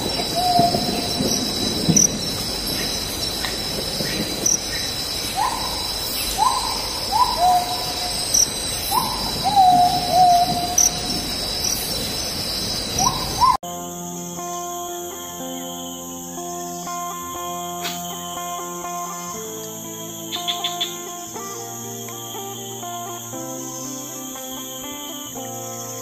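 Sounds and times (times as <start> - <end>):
bird hooting calls: 0.0 - 13.6
insects buzzing: 0.0 - 26.0.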